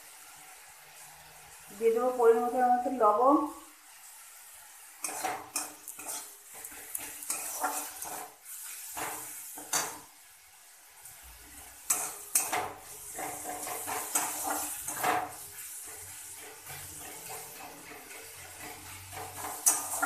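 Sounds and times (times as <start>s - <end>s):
soft sizzle of frying: 0.0s - 20.0s
metal spatula scraping pan: 5.0s - 10.1s, 11.8s - 20.0s.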